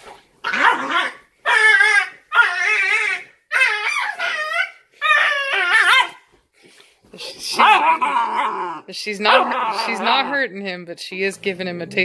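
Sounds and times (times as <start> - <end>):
puppy yelping: 0.4 - 6.2.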